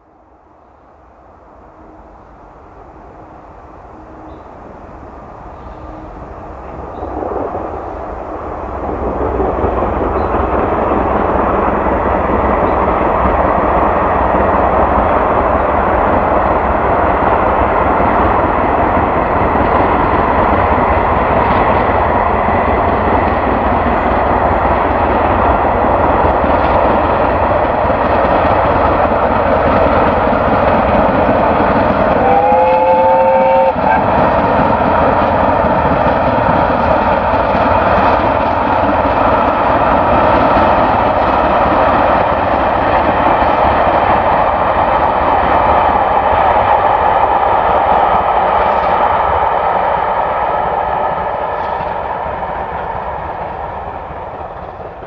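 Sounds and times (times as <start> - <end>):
steam locomotive exhaust roar: 0.0 - 55.0
chime-like train whistle: 32.2 - 33.9.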